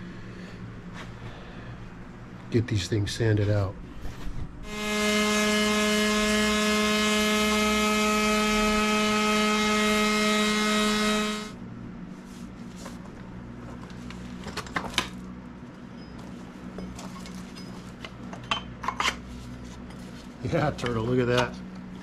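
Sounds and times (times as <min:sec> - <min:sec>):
electric sander on wood: 0:04.7 - 0:11.6.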